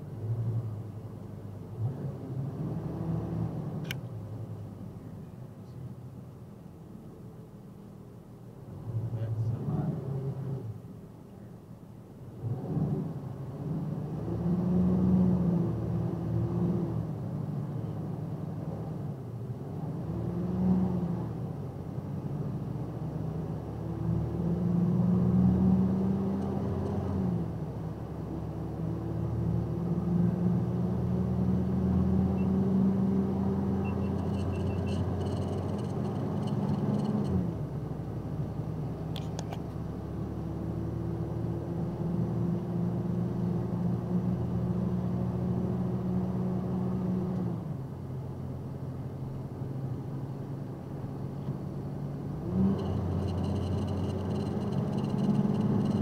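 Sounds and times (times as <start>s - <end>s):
truck engine accelerating: 22.0s - 48.9s, 50.8s - 56.0s.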